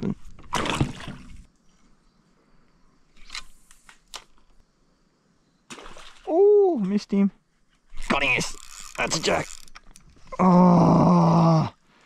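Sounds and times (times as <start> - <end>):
water splash: 0.5 - 1.5, 5.7 - 6.3.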